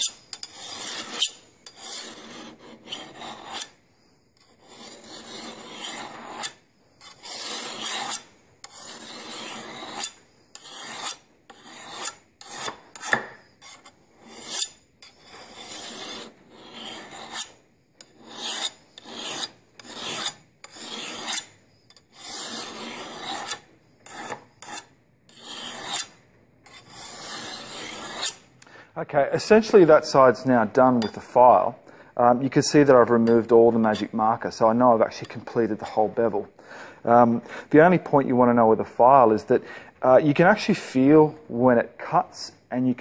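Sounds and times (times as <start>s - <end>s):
file rasping on machete blade: 0.0s - 3.8s, 4.4s - 28.5s.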